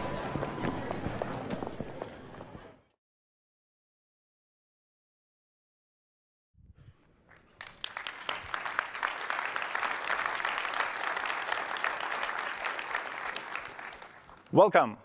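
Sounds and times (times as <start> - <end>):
audience applauding: 7.3 - 14.6.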